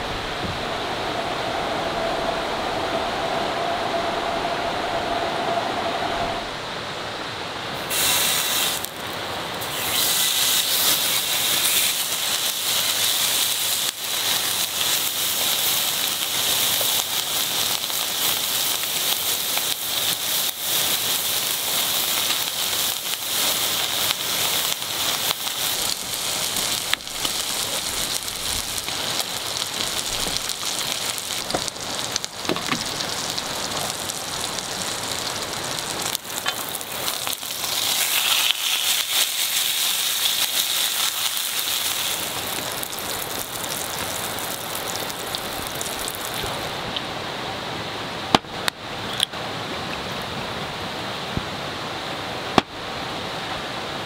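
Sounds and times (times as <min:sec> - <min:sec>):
fat crackling and spattering: 0:07.8 - 0:46.8
pork sizzling on grill pan: 0:07.8 - 0:46.8.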